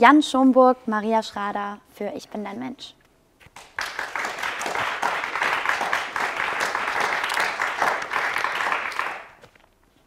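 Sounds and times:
applause: 0:03.6 - 0:09.4.

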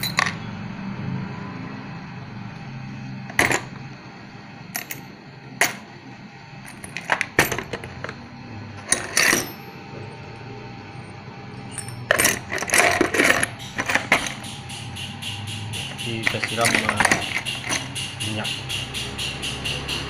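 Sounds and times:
metal bolts clinking in container: 0:00.0 - 0:00.4, 0:06.7 - 0:08.2, 0:08.8 - 0:09.6, 0:11.6 - 0:14.5, 0:15.9 - 0:18.0.

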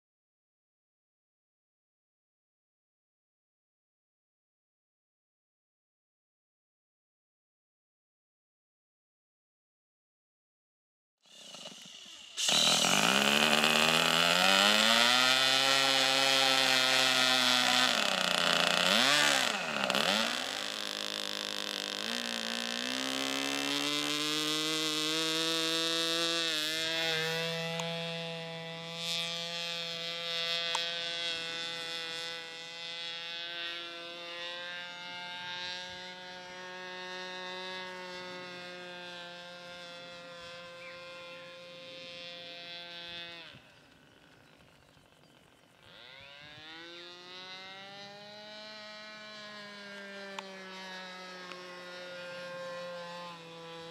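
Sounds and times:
model airplane engine at high revs: 0:11.2 - 0:53.9.

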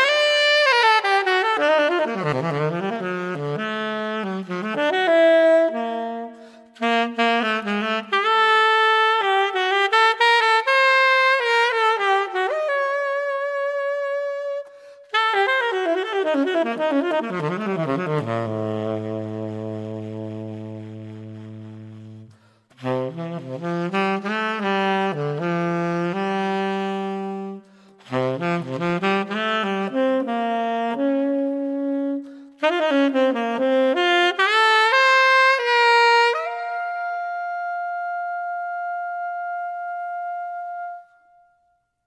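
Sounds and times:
solo jazz saxophone: 0:00.0 - 0:41.7.

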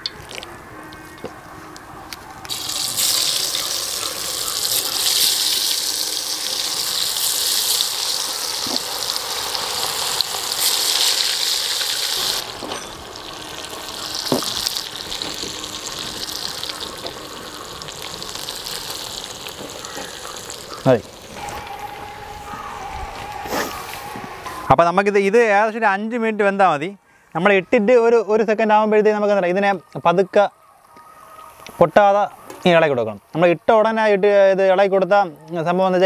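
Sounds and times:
meat deep-frying in oil: 0:02.5 - 0:22.0.

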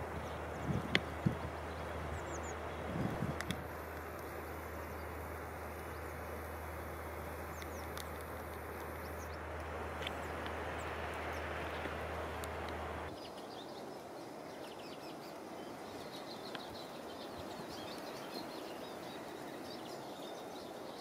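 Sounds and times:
low hum: 0:00.0 - 0:13.2.

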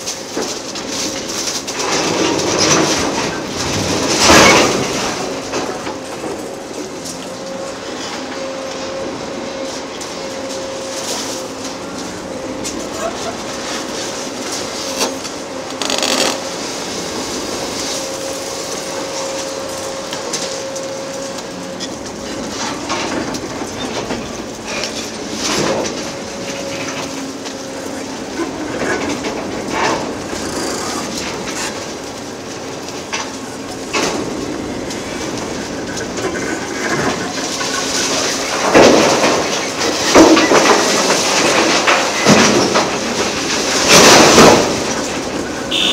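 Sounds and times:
excavator engine and hydraulics humming: 0:00.0 - 0:45.9
concrete cracking and breaking: 0:36.8 - 0:45.3.

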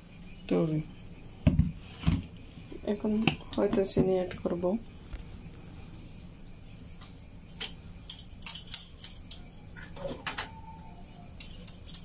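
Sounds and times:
low steady hum: 0:00.0 - 0:12.0
light clicks and clinks: 0:07.6 - 0:09.6, 0:11.4 - 0:12.0.

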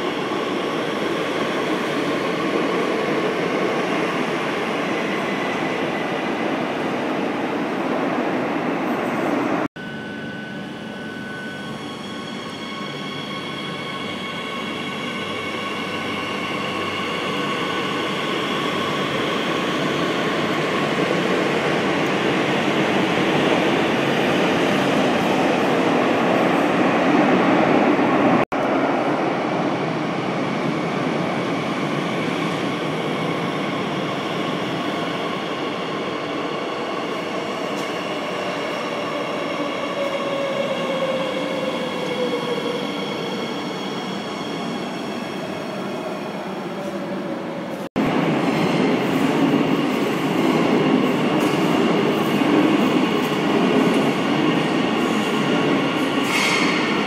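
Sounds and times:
electric train whine: 0:09.8 - 0:26.7.

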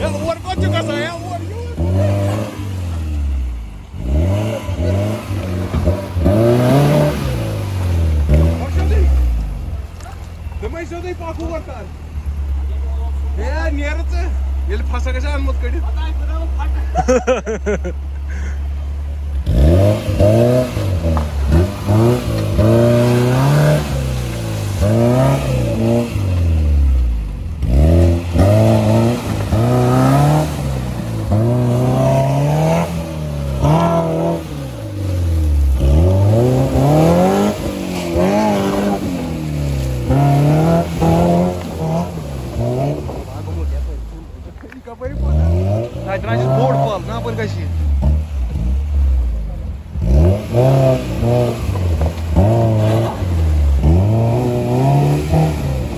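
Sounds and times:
car engine revving: 0:00.0 - 0:55.9.

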